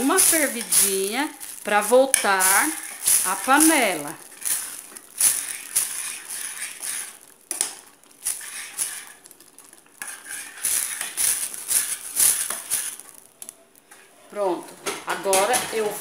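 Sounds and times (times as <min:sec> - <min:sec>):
metal spoon scraping saucepan: 0:00.0 - 0:07.6, 0:08.3 - 0:09.3, 0:10.0 - 0:13.0.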